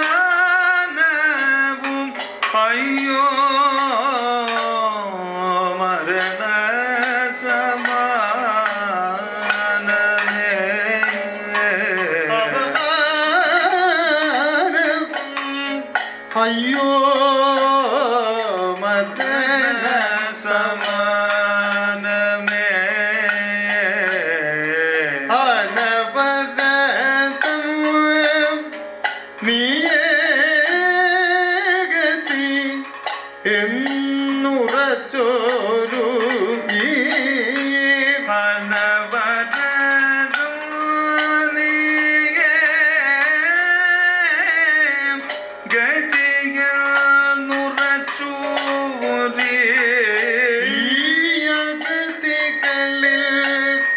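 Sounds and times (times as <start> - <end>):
man singing with ornamented pitch: 0.0 - 53.9
sharp percussion strokes: 0.0 - 53.9.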